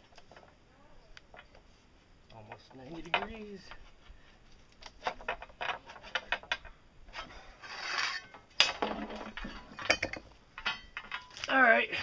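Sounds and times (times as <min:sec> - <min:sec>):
pipe bender clicks and creaks: 0:04.7 - 0:11.5
scraping rub: 0:07.1 - 0:08.3.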